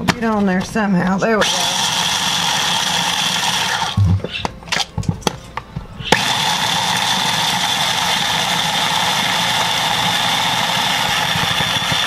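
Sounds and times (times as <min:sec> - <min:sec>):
electric food chopper running: 0:01.4 - 0:04.2, 0:06.1 - 0:12.0
blade grinding peanuts: 0:01.4 - 0:04.4, 0:06.0 - 0:12.0.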